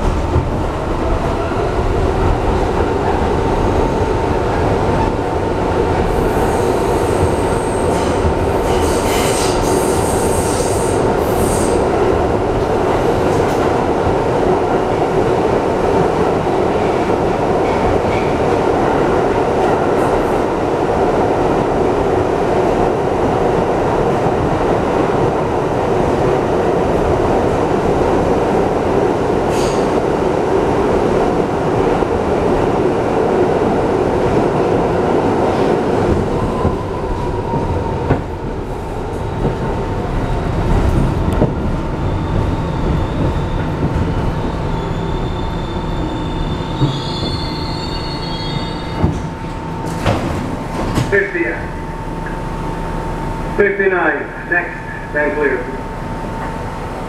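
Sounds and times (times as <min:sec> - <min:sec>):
train wheels rumbling on rail: 0:00.0 - 0:57.0
high wheel squeal: 0:44.7 - 0:49.0.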